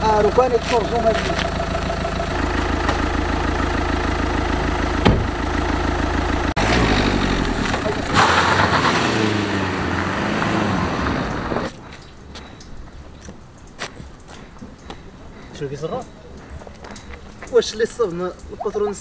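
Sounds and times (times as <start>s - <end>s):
car engine accelerating: 0.0s - 11.8s
car engine idling: 0.0s - 11.8s
tyres on dirt road: 0.0s - 19.0s
single knock: 5.0s - 5.3s.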